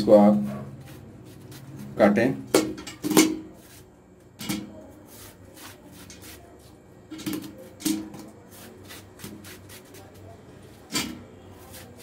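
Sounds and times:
knife cutting watermelon: 7.2s - 10.2s, 11.1s - 12.0s.

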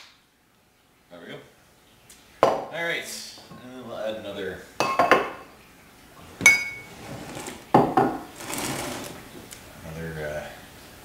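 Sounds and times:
glass jar knocking on wooden counter: 4.8s - 5.4s, 7.7s - 8.3s
ringing glass clink: 4.8s - 5.4s, 6.4s - 6.9s.

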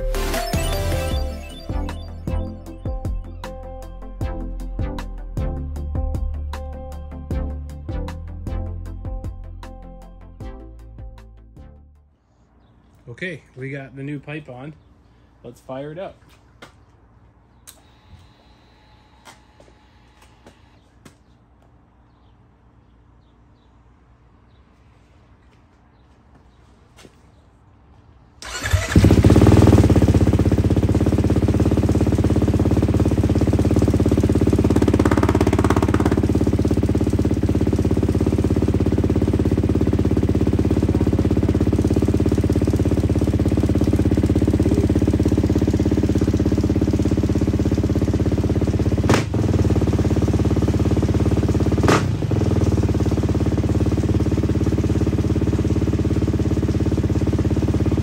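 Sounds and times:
dirt bike engine idling: 28.4s - 58.0s.

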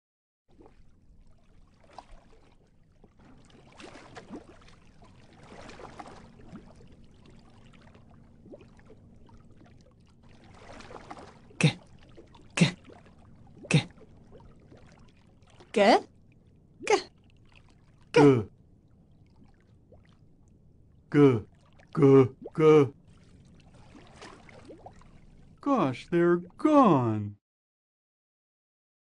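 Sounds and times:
cartoon water swishing and bubbling: 0.5s - 16.0s, 21.1s - 27.1s.

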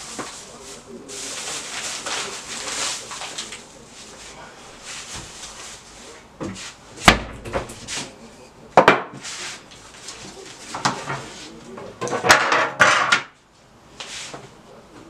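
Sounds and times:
dough scraping and rustling: 0.0s - 6.8s, 9.2s - 11.7s.

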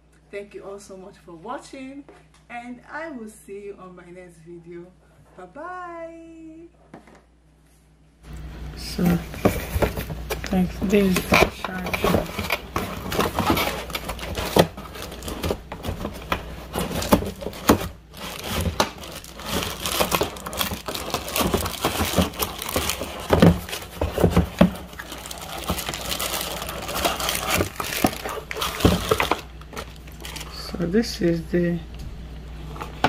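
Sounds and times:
plastic packaging crinkling: 8.8s - 30.8s.

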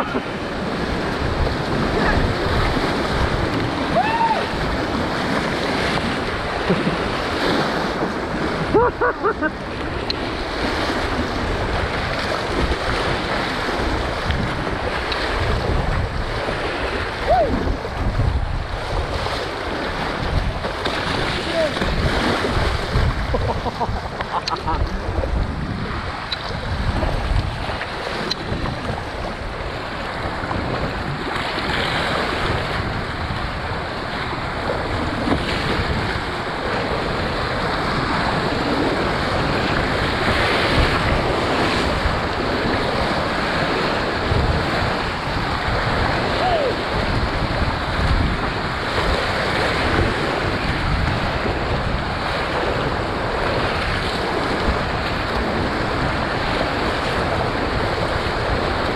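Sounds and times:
rushing whitewater: 0.0s - 58.9s
waves splashing: 0.0s - 58.9s
wind buffeting microphone: 0.0s - 58.9s.

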